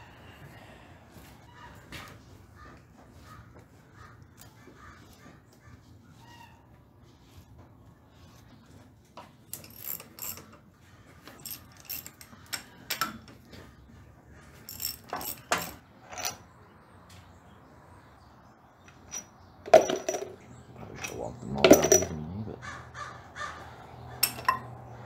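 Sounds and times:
metal tools clinking: 0:09.4 - 0:10.6, 0:11.2 - 0:13.4, 0:14.5 - 0:16.5, 0:18.8 - 0:22.4, 0:24.2 - 0:24.8.

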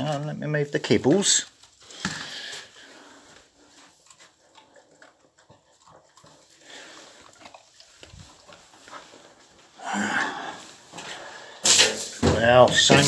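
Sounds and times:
dog panting: 0:02.9 - 0:09.5.

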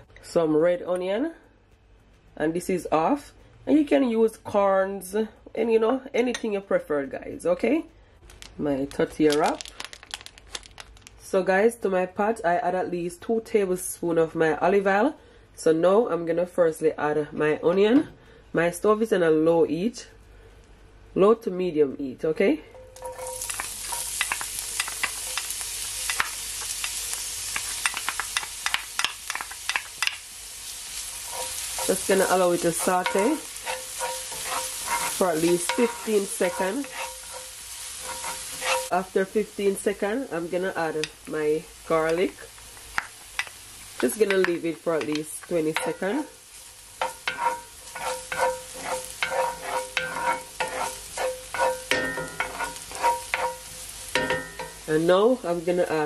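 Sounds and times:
onion sizzling in a pan: 0:08.3 - 0:11.3, 0:22.7 - 0:56.0
spatula scraping skillet: 0:22.7 - 0:39.5, 0:42.0 - 0:55.1
wooden spoon stirring: 0:31.0 - 0:38.9, 0:47.0 - 0:53.8.

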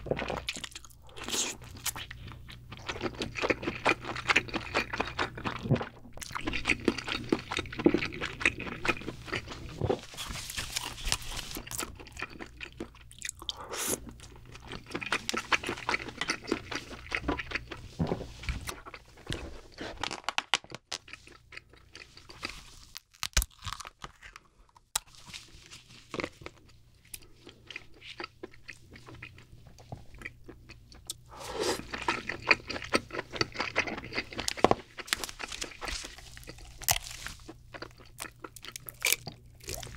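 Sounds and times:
wet chewing and biting: 0:00.0 - 0:17.8, 0:26.1 - 0:39.9.

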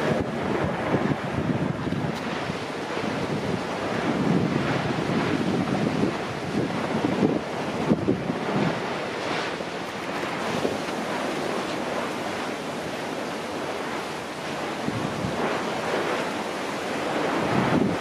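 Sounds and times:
rushing lava vent: 0:00.0 - 0:18.0
wind gusting on microphone: 0:00.0 - 0:18.0.

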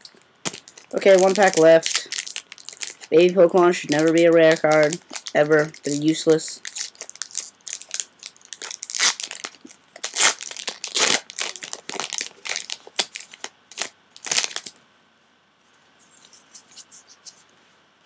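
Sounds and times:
foil wrapper tearing and crinkling: 0:00.4 - 0:14.8.

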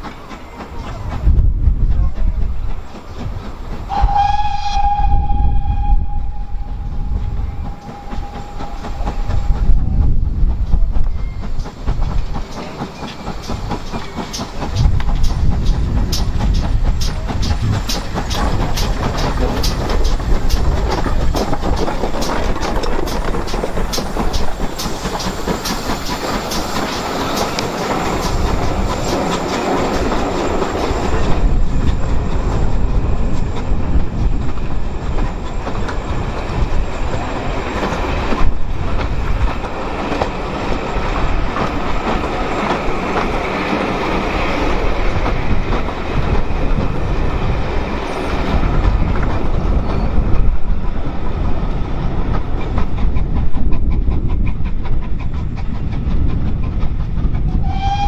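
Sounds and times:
train wheels clattering over rail joints: 0:00.0 - 0:05.2, 0:05.8 - 0:58.0.

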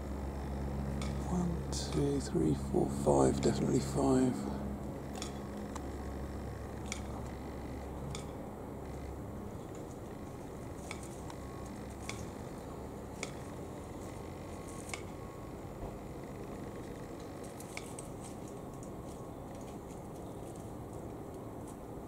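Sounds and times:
low hum: 0:00.0 - 0:22.0
outdoor background hiss: 0:00.0 - 0:22.0.

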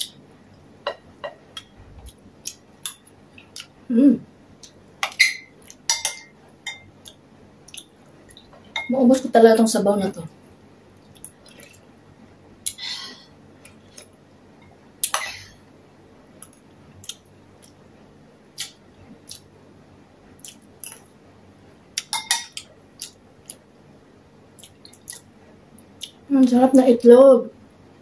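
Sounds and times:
wet eating sounds: 0:11.0 - 0:11.8.

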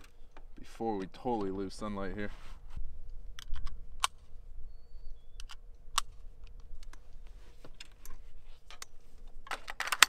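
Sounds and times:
rifle handling clicks: 0:03.3 - 0:04.2, 0:05.4 - 0:07.1, 0:07.7 - 0:10.0
cartridges clicking into magazine: 0:09.5 - 0:10.0.

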